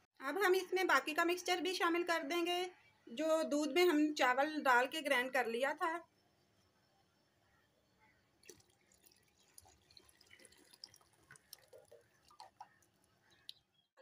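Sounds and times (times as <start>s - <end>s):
liquid dripping into metal pot: 8.4s - 13.9s.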